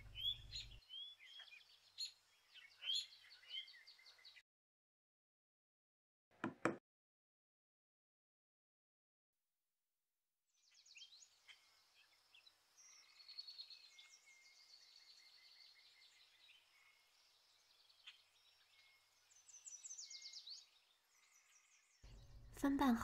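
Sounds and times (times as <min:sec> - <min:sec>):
small birds chirping: 0:00.0 - 0:04.4, 0:10.6 - 0:23.0.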